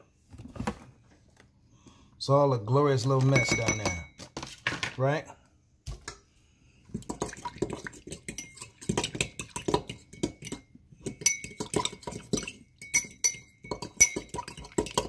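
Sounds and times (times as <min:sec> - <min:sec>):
fork tines clinking against mug: 0:03.3 - 0:04.1, 0:08.3 - 0:10.6, 0:11.2 - 0:14.8
fork scraping paste in mug: 0:07.6 - 0:15.0.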